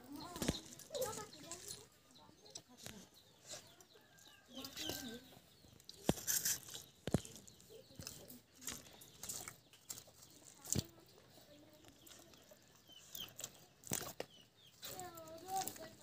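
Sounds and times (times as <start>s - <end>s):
small birds calling: 0.0s - 16.0s.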